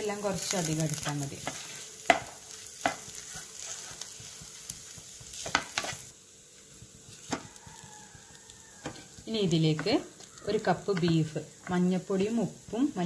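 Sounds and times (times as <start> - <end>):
light sizzle: 0.0 - 13.0
spatula scraping frying pan: 0.4 - 6.1
spatula knocking on pan: 1.4 - 3.1, 7.3 - 7.6, 10.9 - 11.9.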